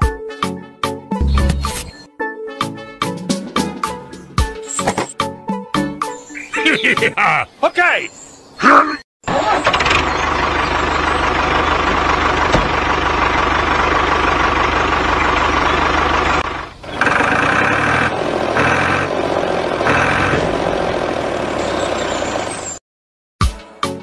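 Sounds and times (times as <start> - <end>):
tractor engine running: 9.3 - 22.8.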